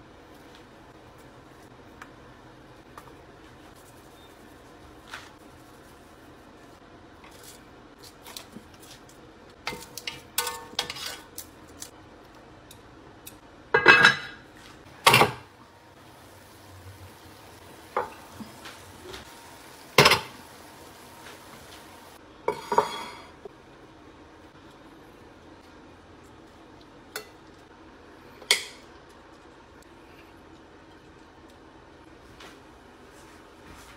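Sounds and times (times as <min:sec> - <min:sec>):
cookware and dishes clattering: 0:09.7 - 0:11.4, 0:13.7 - 0:15.5, 0:17.9 - 0:18.6, 0:19.9 - 0:20.4, 0:22.5 - 0:23.4.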